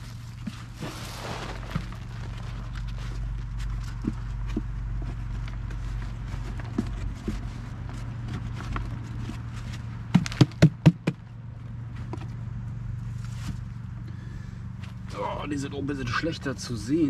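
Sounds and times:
soil crumbling and rustling: 0.0 - 10.8.

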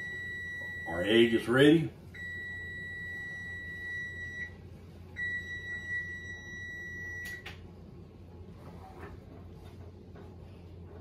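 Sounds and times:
kitchen timer beeping: 0.0 - 1.4, 2.2 - 4.6, 5.2 - 7.6.

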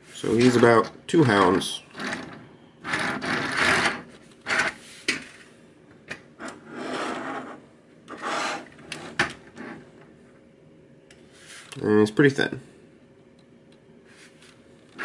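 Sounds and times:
plastic toys scraping on table: 1.9 - 5.1, 6.4 - 9.8.

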